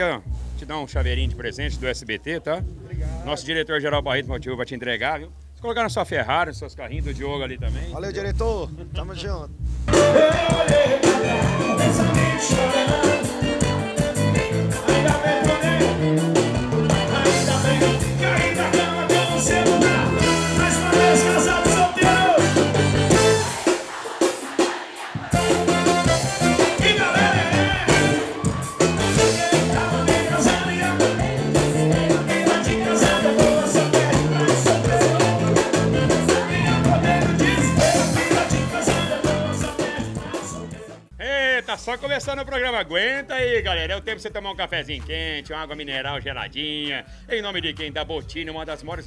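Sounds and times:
bass line: 0.0s - 24.6s, 25.2s - 46.6s
drums: 0.0s - 49.0s
live band music: 8.8s - 41.1s
man singing into a microphone: 9.9s - 13.6s, 14.8s - 16.1s, 17.0s - 22.4s, 29.2s - 31.2s, 32.1s - 40.9s.

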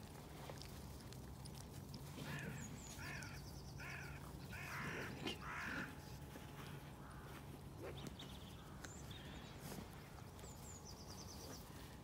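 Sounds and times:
crows cawing: 2.2s - 6.0s, 6.7s - 7.6s.

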